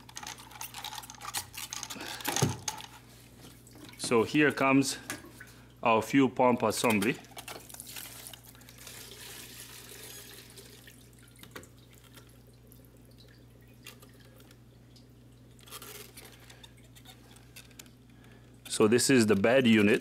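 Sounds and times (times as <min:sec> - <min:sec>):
plastic parts knocking: 0:00.1 - 0:02.8.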